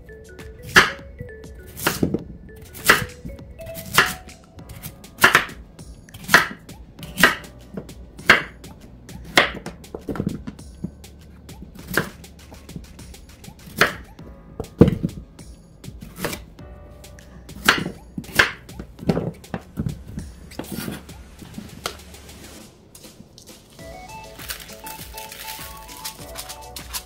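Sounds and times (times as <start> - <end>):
knife chopping on wooden board: 3.9 - 5.6, 6.2 - 7.5, 8.2 - 8.6, 9.3 - 10.6, 11.8 - 12.8, 16.0 - 16.5, 17.5 - 19.7.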